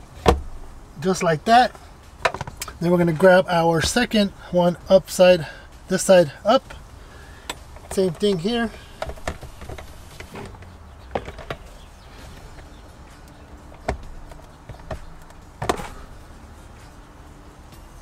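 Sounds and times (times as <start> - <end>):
plastic filter knocks and taps: 11.1 - 11.6.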